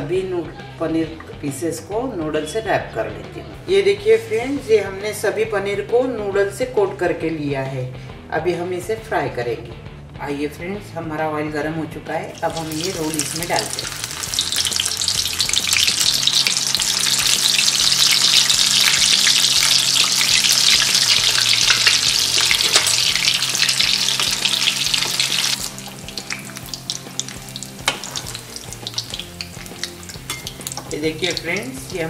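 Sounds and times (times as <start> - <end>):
food sizzling in hot oil: 12.3 - 32.0.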